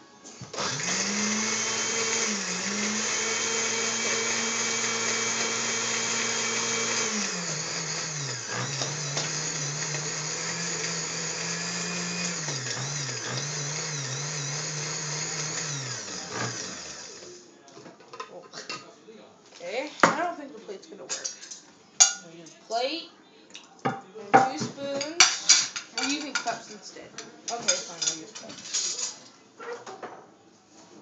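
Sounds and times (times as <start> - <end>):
blender motor running: 0.5 - 17.3.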